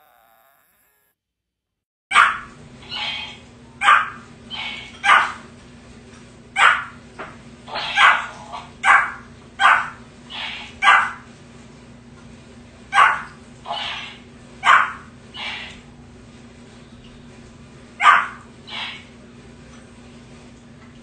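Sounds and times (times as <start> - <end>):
puppy yapping: 2.1 - 5.4, 6.6 - 7.0, 7.7 - 11.2, 12.9 - 15.7, 18.0 - 19.0.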